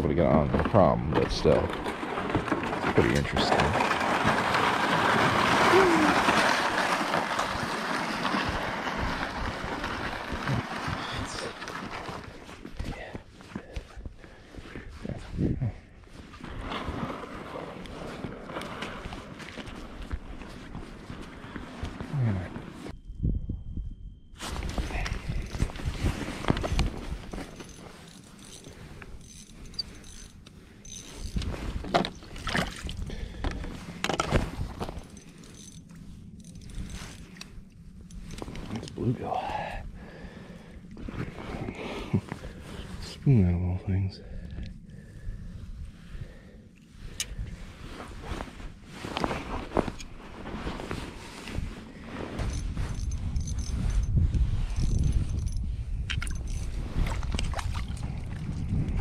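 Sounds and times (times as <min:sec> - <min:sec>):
sled scraping over ice: 0:00.1 - 0:13.1, 0:16.0 - 0:22.9, 0:24.4 - 0:43.4, 0:47.5 - 0:55.6
fishing reel cranking: 0:27.4 - 0:31.5, 0:35.0 - 0:37.2, 0:52.5 - 0:54.1, 0:54.7 - 0:56.8.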